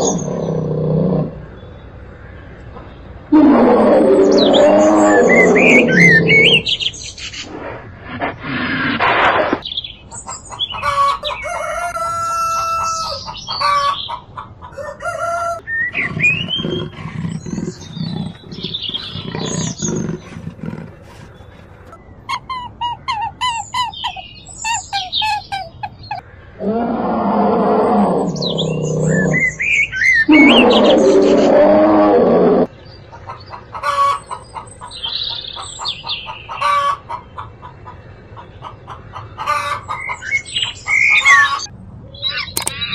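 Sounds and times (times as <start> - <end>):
chickens clucking: 9.0 - 26.3, 32.8 - 41.7
rooster crowing: 10.9 - 14.0, 14.7 - 15.6.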